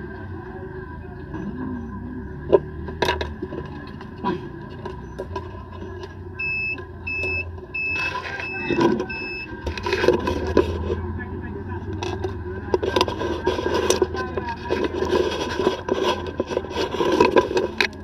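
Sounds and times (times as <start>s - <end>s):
short electronic beeps: 5.0s - 9.6s.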